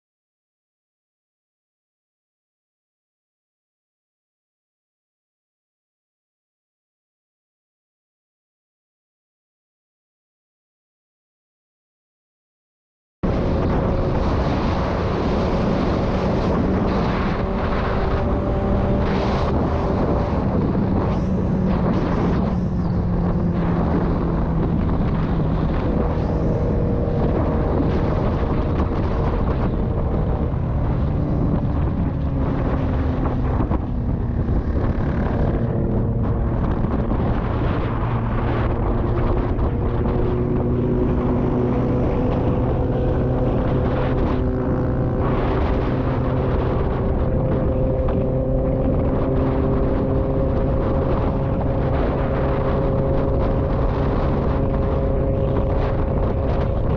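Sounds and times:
wind rush on microphone: 13.2 - 56.9
motorcycle engine cruising: 13.3 - 56.9.

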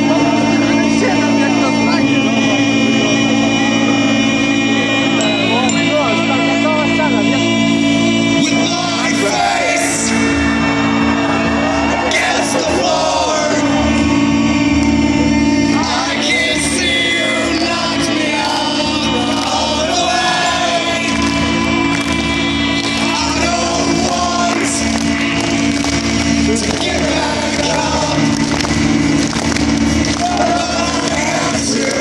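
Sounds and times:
crowd voices: 0.0 - 32.0
low drone music: 0.0 - 32.0
person singing: 15.8 - 25.0, 26.5 - 28.6.

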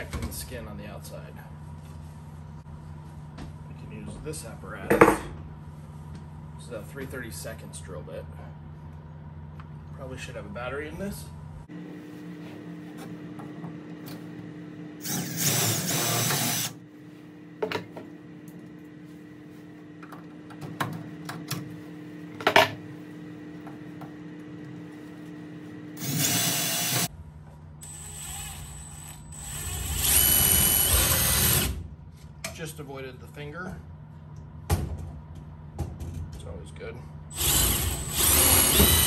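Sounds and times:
cordless drill drilling into metal: 15.0 - 16.7, 26.0 - 27.1, 27.8 - 31.7, 37.3 - 39.0.

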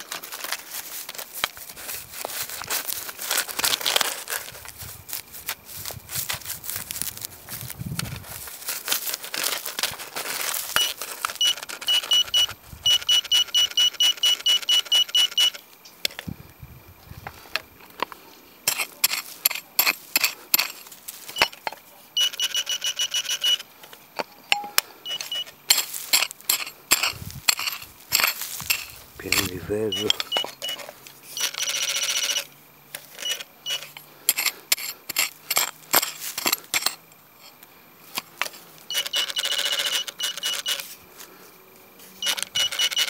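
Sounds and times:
scraping and rustling of sweeps: 0.0 - 11.6, 18.2 - 21.5, 25.1 - 31.4, 33.0 - 38.8
metal detector beeping: 10.4 - 15.6, 18.7 - 35.7, 38.9 - 41.0, 42.2 - 43.0.

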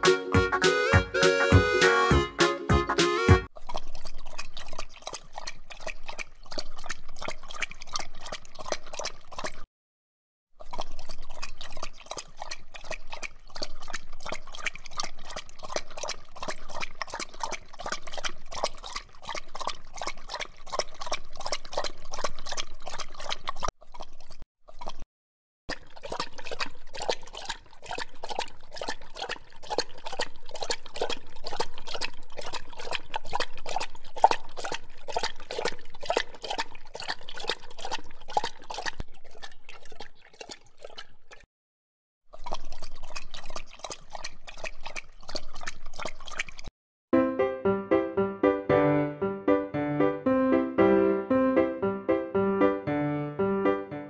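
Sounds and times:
dogs licking wetly: 3.5 - 9.7, 10.6 - 25.0, 25.7 - 41.5, 42.3 - 46.7.

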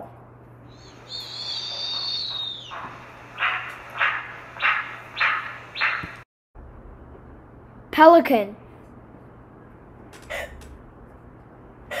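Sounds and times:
owl calling: 0.7 - 6.2.

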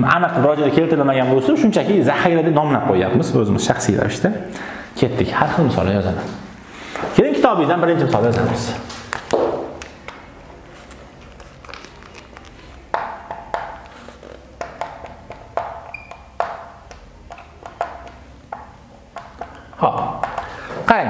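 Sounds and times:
marker tapping on whiteboard: 12.9 - 20.6.

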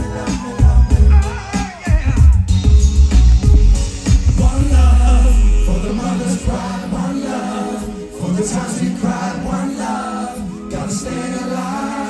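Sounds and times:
voices singing: 0.0 - 2.5, 4.3 - 12.0
heavy bass: 0.0 - 6.7.

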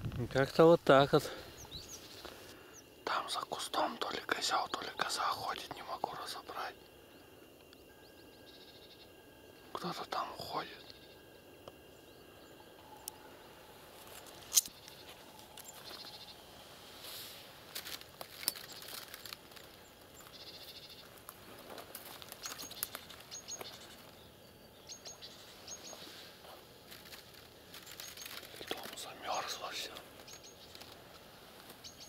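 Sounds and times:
brushing through dry reeds: 14.0 - 20.4, 25.3 - 29.3
high bird chirps: 22.4 - 26.1.

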